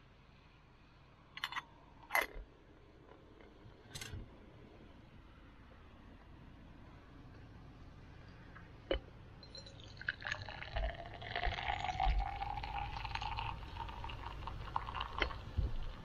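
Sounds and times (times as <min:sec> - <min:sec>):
liquid pouring into container: 0:09.5 - 0:16.0.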